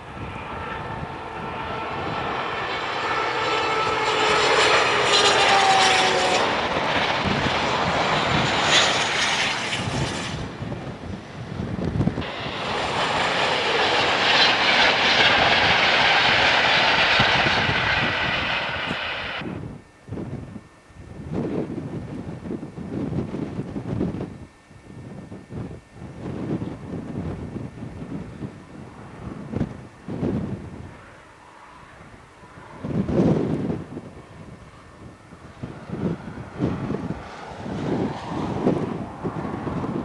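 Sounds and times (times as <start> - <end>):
high-speed train passing: 0.0 - 19.7, 28.6 - 40.0.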